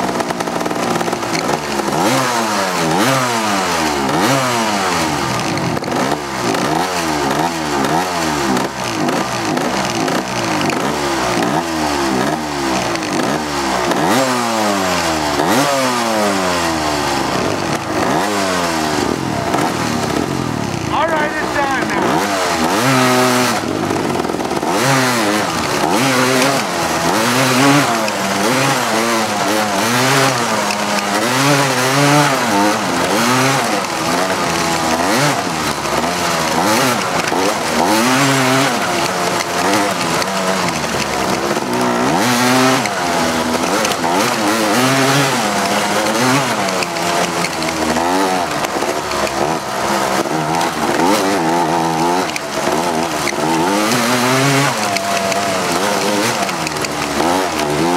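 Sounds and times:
atv engine revving: 0:00.0 - 0:57.9
steady rushing noise: 0:17.0 - 0:57.9.

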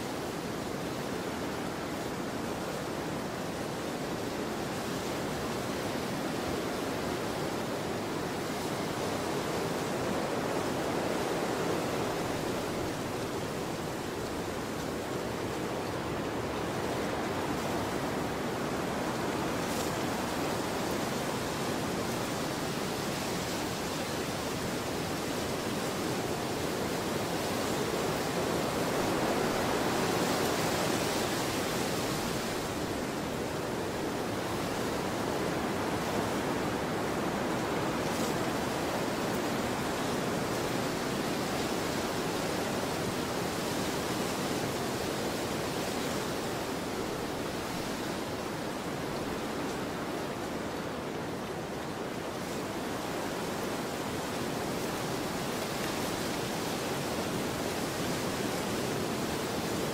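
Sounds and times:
rushing wind: 0:00.0 - 0:59.9.

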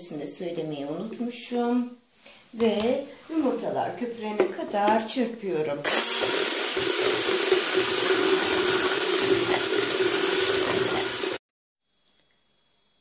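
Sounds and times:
electric hand mixer whisking: 0:05.9 - 0:11.4.

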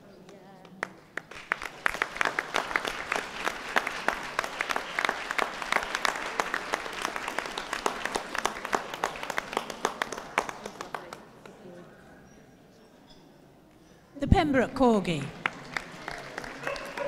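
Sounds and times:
audience applauding: 0:00.8 - 0:11.4, 0:15.2 - 0:17.0.

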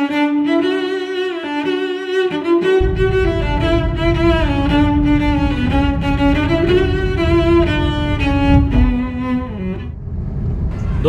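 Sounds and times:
steady low rumble: 0:02.8 - 0:11.0.

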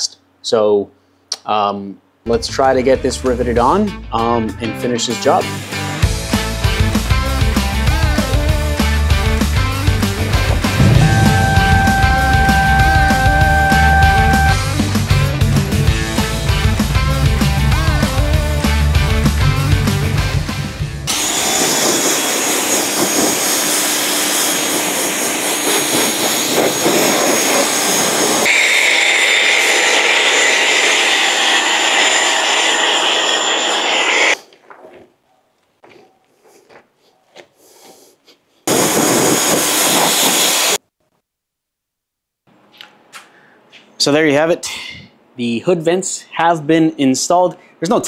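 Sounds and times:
rock music: 0:05.4 - 0:21.1
pressure washer spraying: 0:21.2 - 0:31.5.

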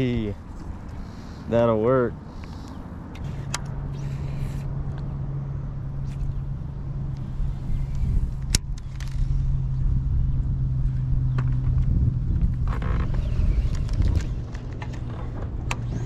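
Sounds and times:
electric trolling motor humming: 0:02.2 - 0:16.0
low rumble: 0:03.6 - 0:16.0.

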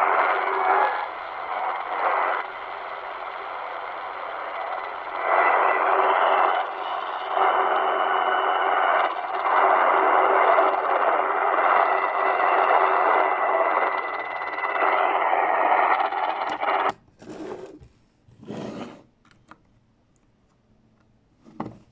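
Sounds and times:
distorted radio signal noise: 0:00.0 - 0:16.9
steady whistling tones: 0:00.0 - 0:16.9.

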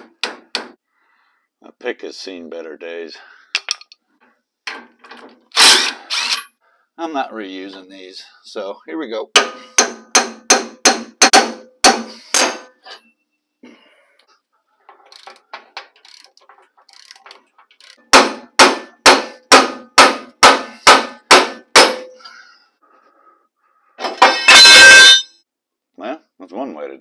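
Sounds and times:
hammer ringing on steel: 0:24.3 - 0:25.4.

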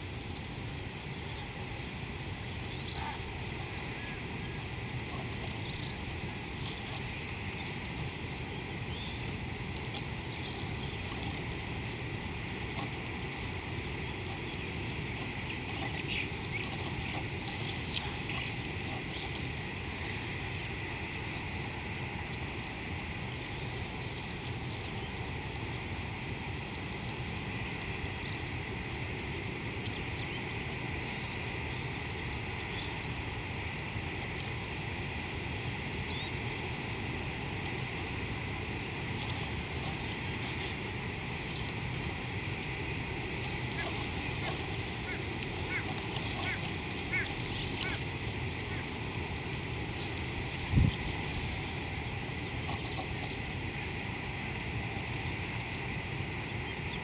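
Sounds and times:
faint short animal calls: 0:43.8 - 0:48.0.

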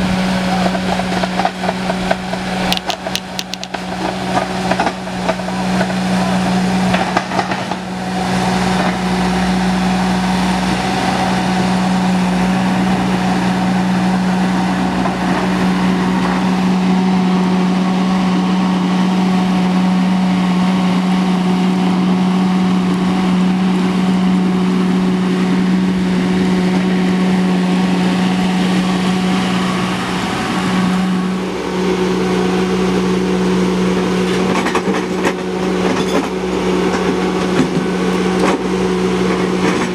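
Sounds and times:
skid steer engine running: 0:00.0 - 0:39.9.

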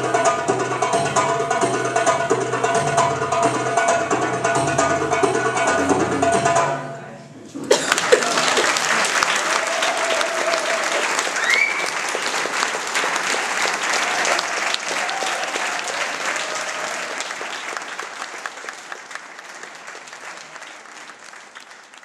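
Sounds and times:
audience applauding: 0:07.7 - 0:22.0.

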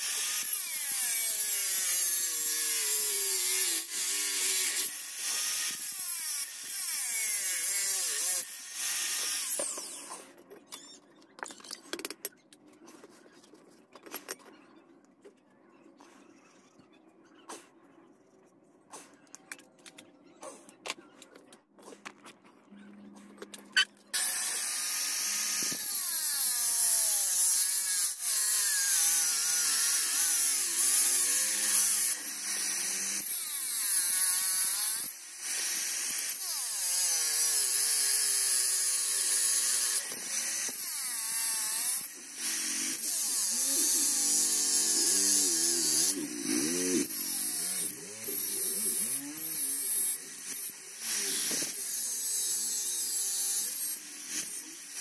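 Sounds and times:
angle grinder whine: 0:24.2 - 0:35.7, 0:36.3 - 0:55.0
disc grinding through metal: 0:39.7 - 0:54.7.

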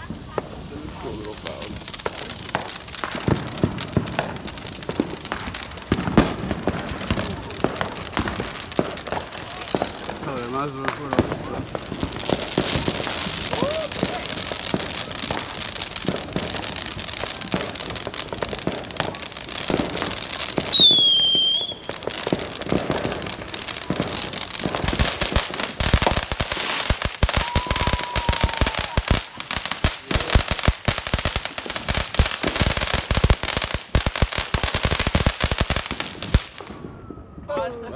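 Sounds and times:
firework fountain hissing: 0:00.0 - 0:36.9
dense crackling of sparks: 0:00.0 - 0:37.1
loud firework whistle: 0:12.8 - 0:14.2, 0:20.6 - 0:22.0, 0:27.3 - 0:29.2, 0:36.6 - 0:37.5.

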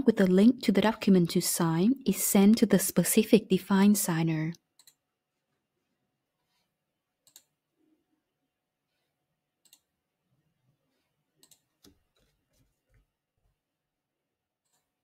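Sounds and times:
computer mouse and keyboard clicks: 0:07.2 - 0:07.6, 0:09.6 - 0:09.9, 0:11.4 - 0:12.8.

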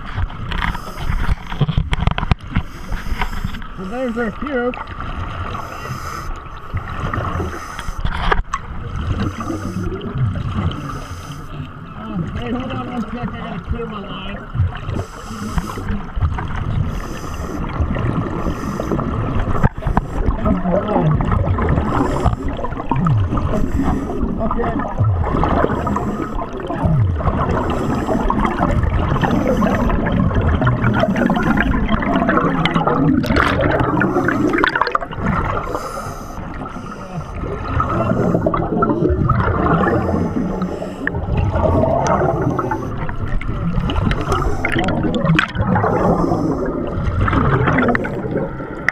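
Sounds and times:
air bubbling and gurgling: 0:00.0 - 0:48.9
diver's regulator breathing underwater: 0:00.5 - 0:04.2, 0:05.4 - 0:08.4, 0:09.0 - 0:11.7, 0:14.6 - 0:48.8.

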